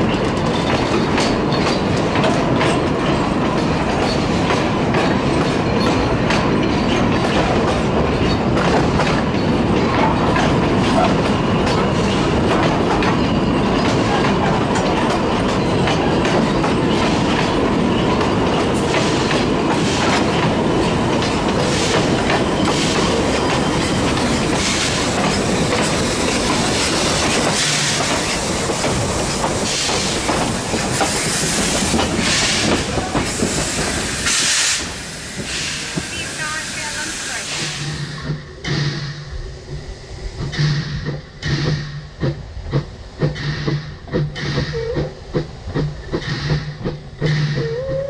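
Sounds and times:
train wheels clacking on rails: 0.0s - 48.0s
bursts of hiss: 29.1s - 38.3s.

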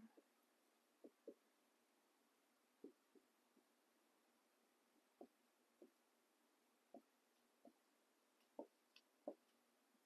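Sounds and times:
marker tapping a whiteboard: 1.0s - 1.6s, 2.8s - 3.8s, 4.9s - 6.1s, 6.8s - 9.7s.

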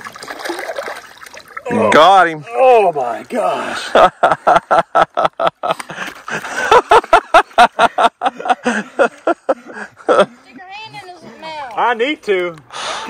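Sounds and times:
man laughing hard: 3.7s - 10.3s.

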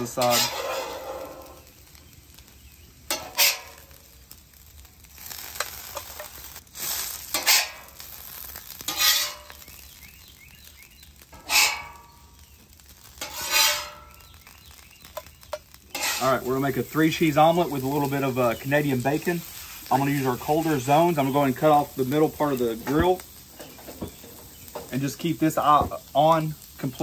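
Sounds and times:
metal spatula scraping griddle: 0.0s - 1.7s, 3.1s - 4.0s, 5.1s - 9.7s, 11.3s - 12.2s, 13.0s - 14.4s, 15.1s - 25.9s
food sizzling: 0.0s - 27.0s.

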